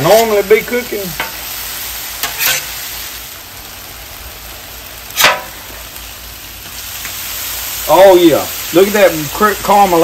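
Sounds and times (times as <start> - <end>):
steak sizzling on griddle: 0.0 - 10.0
metal spatula scraping steel: 2.2 - 2.8.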